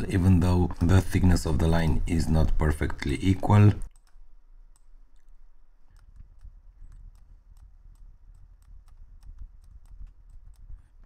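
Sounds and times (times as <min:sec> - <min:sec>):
computer mouse clicking: 0:02.8 - 0:11.0.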